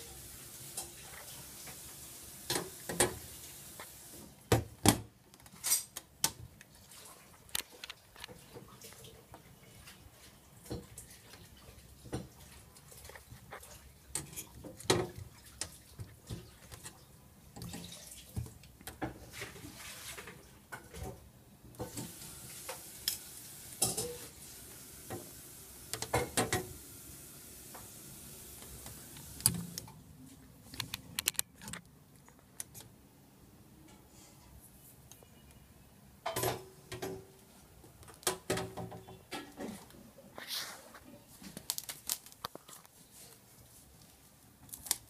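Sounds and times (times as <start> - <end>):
plastic parts clicking and tapping: 30.7 - 32.9.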